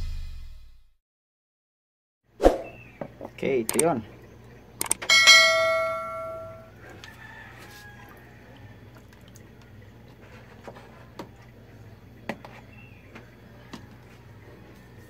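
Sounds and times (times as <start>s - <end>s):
water dripping: 8.0s - 10.3s.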